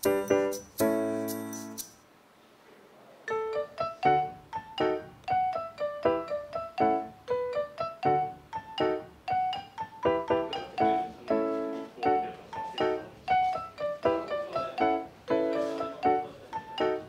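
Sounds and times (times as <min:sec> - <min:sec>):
piano music: 0:00.0 - 0:02.0, 0:03.3 - 0:17.0.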